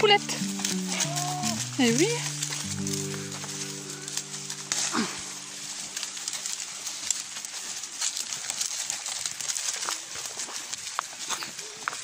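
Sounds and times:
background music chord: 0.0s - 6.7s
leafy branches rustling: 0.0s - 12.0s
twigs snapping: 0.4s - 12.0s
goat call: 0.5s - 7.1s.

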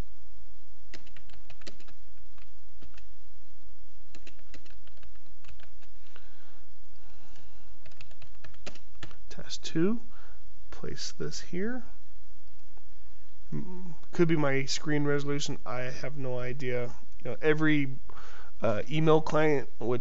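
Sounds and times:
steady low hum: 0.0s - 20.0s
keyboard key clicks: 0.9s - 3.1s, 4.1s - 5.9s.

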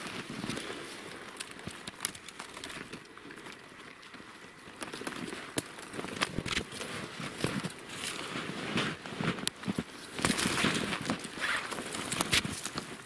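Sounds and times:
twigs snapping: 0.0s - 13.0s
footsteps crunching through snow: 6.0s - 13.0s.

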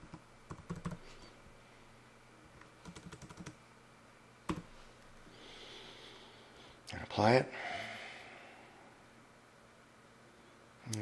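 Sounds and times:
computer keyboard keystrokes: 0.0s - 1.0s, 2.8s - 3.6s, 4.5s - 4.7s.

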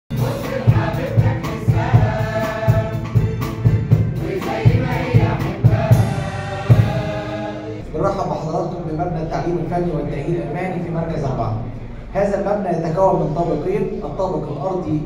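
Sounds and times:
choir singing: 0.1s - 8.1s
steady low beat: 0.1s - 14.2s
keyboard: 0.1s - 15.0s.

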